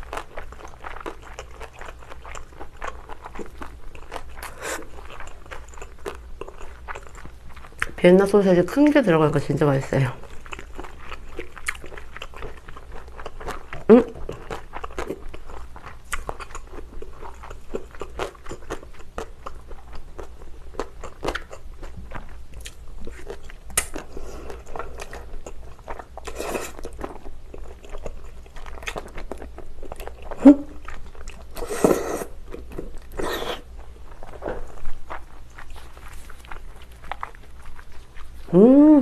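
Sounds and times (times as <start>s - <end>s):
wet chewing with mouth clicks: 0.0s - 39.0s
slurping noodles: 26.2s - 26.9s, 31.6s - 32.4s, 33.1s - 33.7s.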